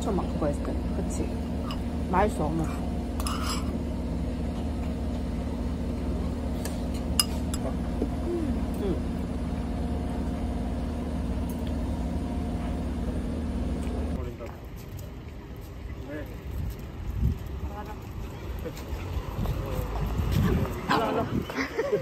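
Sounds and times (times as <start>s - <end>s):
low machine hum: 0.0s - 14.3s.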